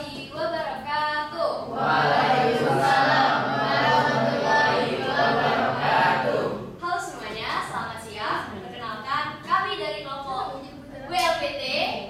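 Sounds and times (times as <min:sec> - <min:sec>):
students chanting in unison: 0:01.6 - 0:06.8.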